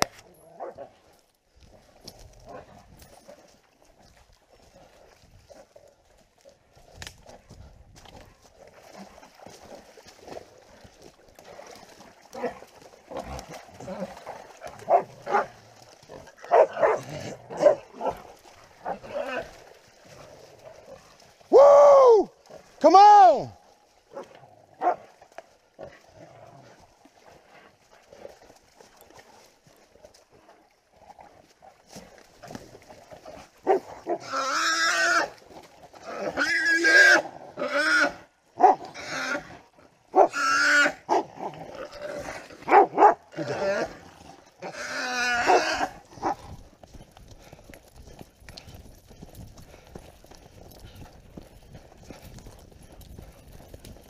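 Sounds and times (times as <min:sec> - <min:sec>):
dogs barking and yelping: 0:16.4 - 0:18.2, 0:45.4 - 0:46.4.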